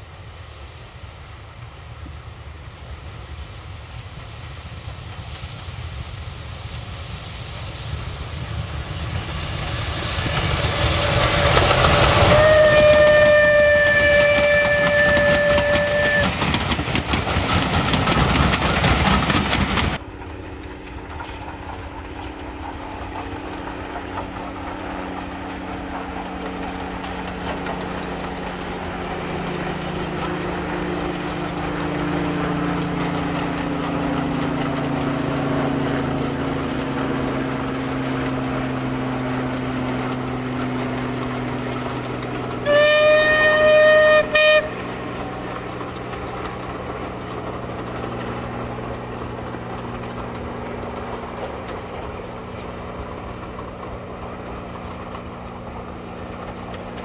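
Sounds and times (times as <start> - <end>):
distant steam train rumble: 0.0 - 57.0
train wheels clattering: 7.8 - 57.0
steam locomotive whistle: 10.9 - 16.5, 42.6 - 44.9
train whistle: 11.0 - 16.5, 42.6 - 44.9.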